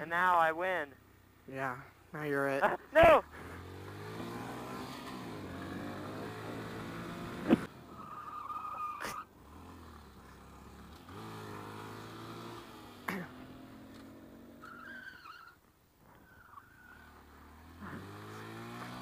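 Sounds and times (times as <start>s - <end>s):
motorcycle engine running: 3.1s - 8.0s, 9.4s - 14.6s, 17.2s - 19.0s.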